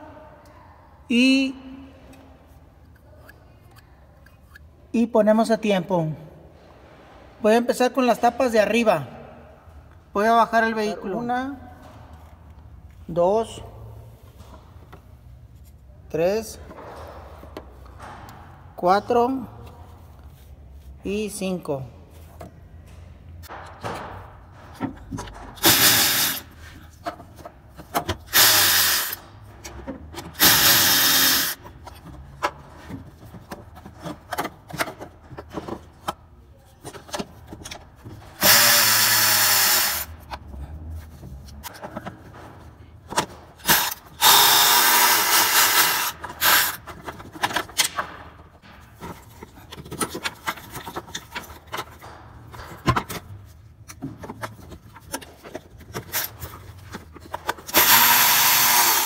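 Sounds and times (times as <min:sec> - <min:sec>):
power drill spinning bolts: 0:25.6 - 0:26.5, 0:28.2 - 0:29.2, 0:30.3 - 0:31.6, 0:38.4 - 0:40.1, 0:43.6 - 0:46.9, 0:57.7 - 0:59.0.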